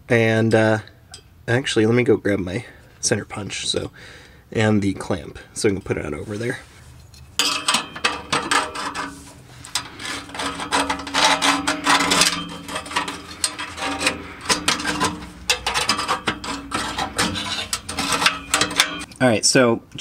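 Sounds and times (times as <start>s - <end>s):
steady low hum: 2.6s - 19.2s
metal clamp clinking on exhaust pipe: 7.0s - 9.9s, 11.9s - 19.2s.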